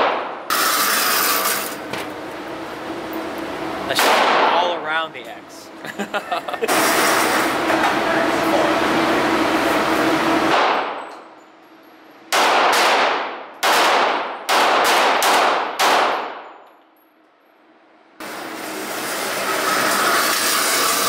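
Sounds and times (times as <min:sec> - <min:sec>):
pistol shots echoing indoors: 0:04.0 - 0:04.6, 0:10.5 - 0:11.2, 0:12.3 - 0:16.7.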